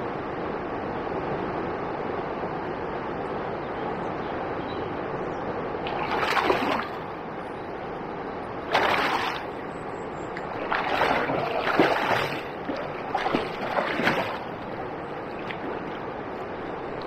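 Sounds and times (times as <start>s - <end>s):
river rushing: 5.6s - 17.0s
fish splashing at surface: 5.9s - 7.0s, 8.7s - 9.6s, 10.4s - 16.0s.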